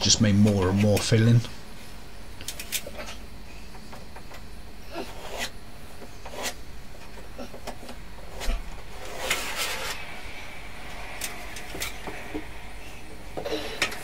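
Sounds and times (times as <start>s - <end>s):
short scrape: 8.3s - 13.0s.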